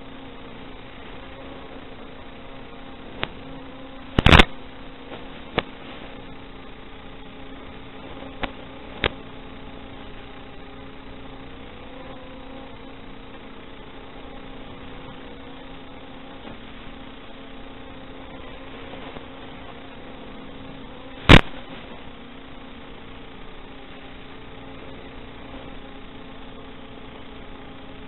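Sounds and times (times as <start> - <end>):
receiver hiss and hum: 0.0 - 28.0
short sharp clicks: 4.2 - 4.5.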